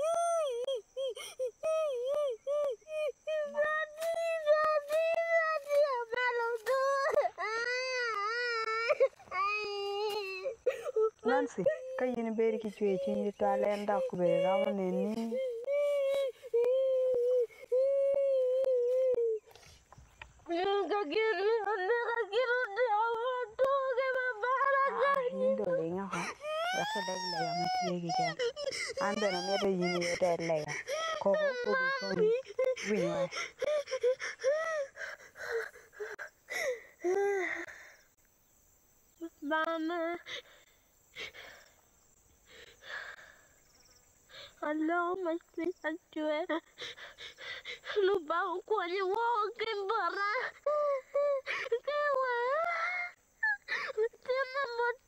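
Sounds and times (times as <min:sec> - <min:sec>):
person sobbing: 0:00.0 - 0:03.8, 0:06.6 - 0:12.0, 0:13.0 - 0:19.4, 0:24.5 - 0:37.9, 0:50.0 - 0:54.8
girl wailing: 0:00.0 - 0:12.1, 0:24.4 - 0:37.6.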